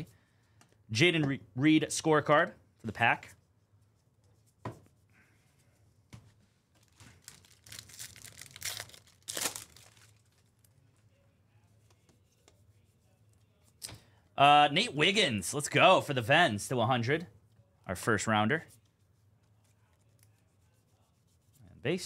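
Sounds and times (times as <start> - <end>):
card pack wrapper tearing and crinkling: 6.9 - 10.4.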